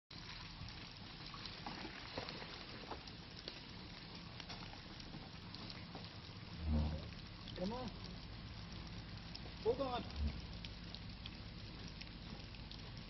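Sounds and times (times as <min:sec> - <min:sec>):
rushing water: 0:00.1 - 0:13.0
faint low engine hum: 0:03.2 - 0:13.0.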